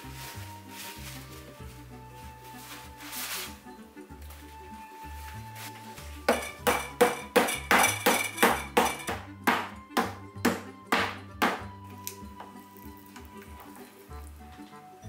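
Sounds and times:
wooden mallet pounding meat: 6.3s - 11.7s.

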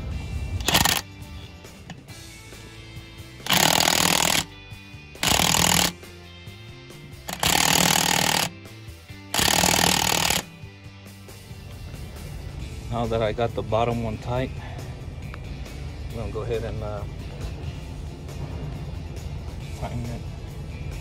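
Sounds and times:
impact wrench hammering: 0.6s - 1.1s, 3.4s - 4.5s, 5.2s - 6.0s, 7.3s - 8.6s, 9.3s - 10.5s.

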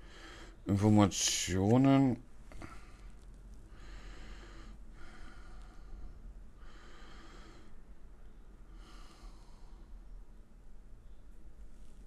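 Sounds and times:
man breathing through nose: 0.0s - 0.6s, 2.5s - 7.9s, 8.7s - 10.0s
faint low hum: 0.0s - 12.0s.

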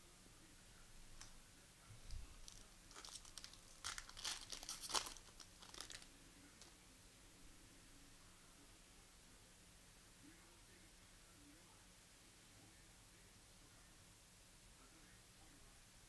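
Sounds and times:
foil wrapper crinkling: 2.4s - 6.8s.

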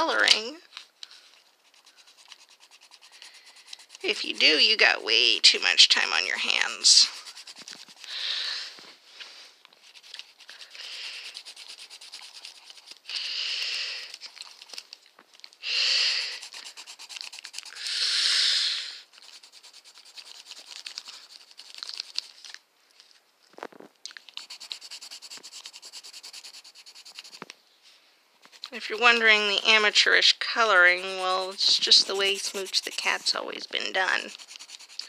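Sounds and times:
pencil scribbling on paper: 1.4s - 8.2s, 9.8s - 13.1s, 16.1s - 17.8s, 19.0s - 22.3s, 24.3s - 27.4s, 28.4s - 35.0s.

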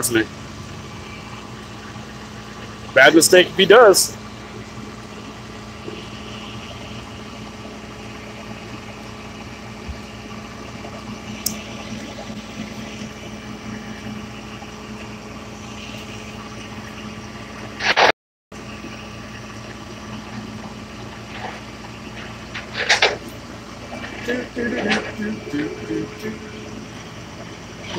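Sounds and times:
truck engine idling: 0.0s - 18.0s, 18.6s - 27.9s
loud scrape: 17.8s - 18.1s, 21.3s - 23.3s.

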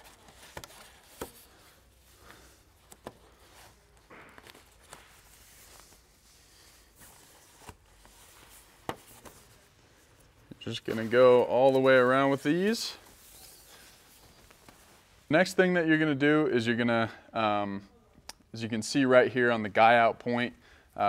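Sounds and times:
fabric rustling: 0.0s - 15.3s.

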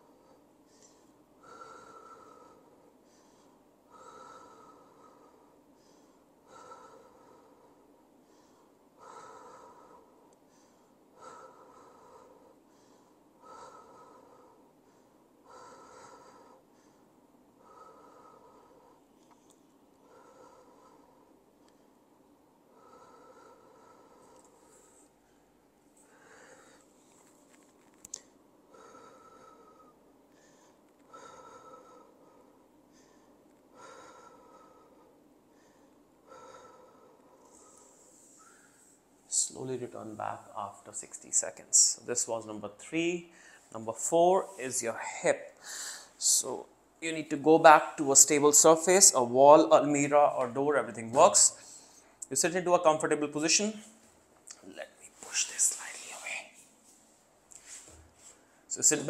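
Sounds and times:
man breathing deeply: 0.0s - 27.6s, 28.2s - 39.1s, 43.3s - 46.4s, 51.4s - 52.2s
man breathing with slight whistle: 28.7s - 39.0s, 45.5s - 46.2s.

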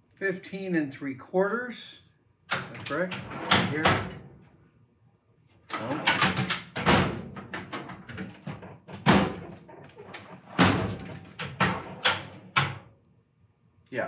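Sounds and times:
steel drawer knocks and clanks: 2.5s - 4.3s, 5.8s - 12.9s.

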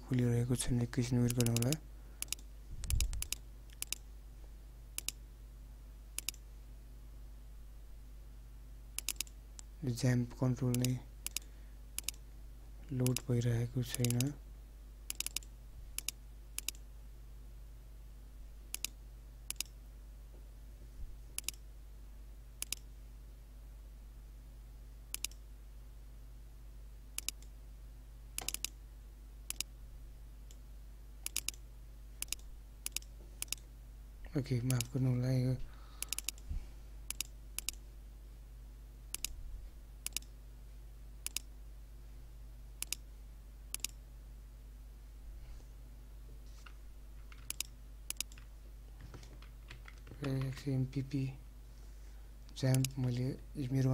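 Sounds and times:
low steady hum: 0.0s - 53.9s
computer mouse clicks: 1.2s - 4.1s, 5.0s - 5.2s, 6.2s - 6.4s, 9.0s - 9.7s, 10.7s - 12.2s, 13.0s - 13.3s, 13.9s - 14.3s, 15.1s - 16.8s, 18.7s - 19.8s, 21.4s - 21.6s, 22.6s - 22.9s, 25.1s - 25.4s, 27.2s - 27.5s, 28.4s - 28.8s, 29.5s - 29.7s, 31.2s - 31.6s, 32.2s - 33.7s, 34.6s - 35.0s, 36.0s - 36.4s, 37.1s - 37.8s, 39.1s - 39.4s, 40.0s - 40.3s, 41.2s - 41.5s, 42.8s - 43.1s, 43.7s - 44.0s, 47.3s - 48.5s, 52.7s - 53.2s
computer mouse button clicks: 28.4s - 28.8s.

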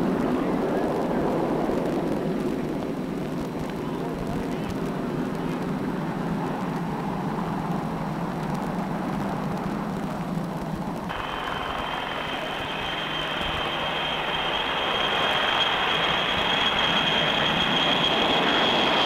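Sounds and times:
high jet engine whine: 0.0s - 19.0s
jet engine rushing noise: 8.7s - 19.0s.

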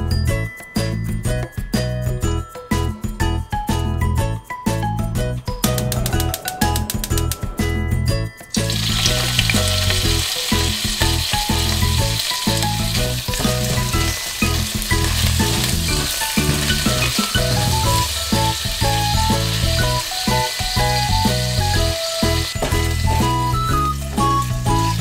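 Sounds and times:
shrimp sizzling in a pan: 8.6s - 25.0s
spatula stirring in a pan: 8.9s - 22.9s.

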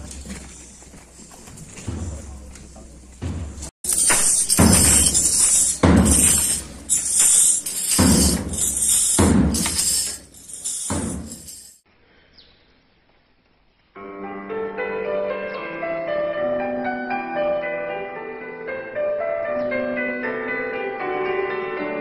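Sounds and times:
drums beating march rhythm: 1.8s - 11.8s
piano music: 14.0s - 22.0s.

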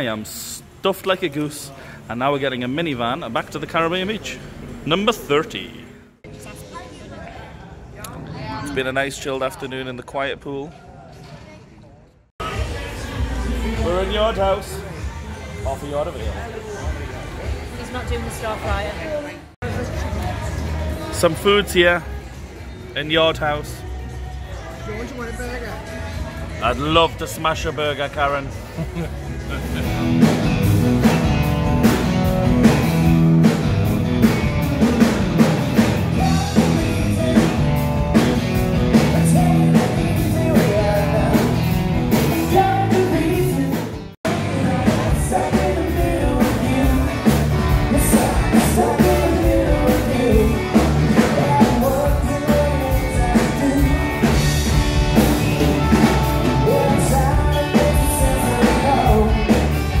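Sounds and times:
live rock band playing: 29.5s - 60.0s
man singing: 36.1s - 38.0s, 38.9s - 54.6s, 56.4s - 60.0s.

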